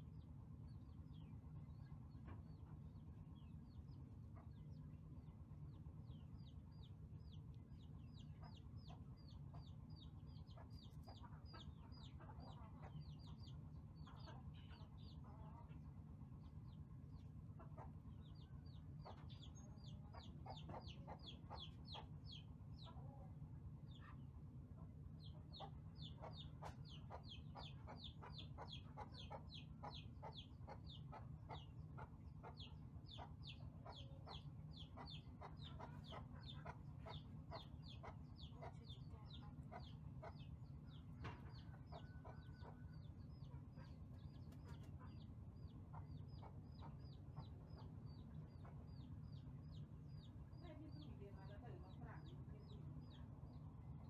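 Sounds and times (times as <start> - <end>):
steady low hum: 0.0 - 54.0
faint high peeping calls: 0.1 - 54.0.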